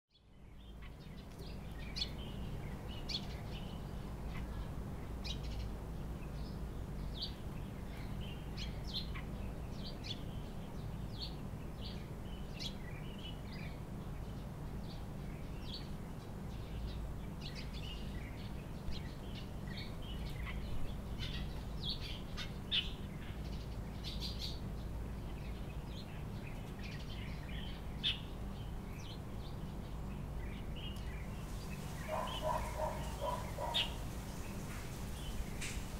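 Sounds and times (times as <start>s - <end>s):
small birds chirping: 0.1s - 35.9s.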